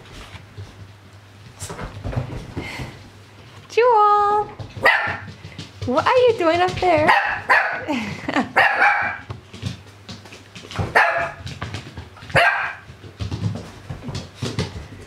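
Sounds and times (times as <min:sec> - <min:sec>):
puppy barking: 0:04.8 - 0:05.3, 0:07.1 - 0:07.9, 0:08.5 - 0:09.3, 0:10.8 - 0:11.4, 0:12.3 - 0:12.9.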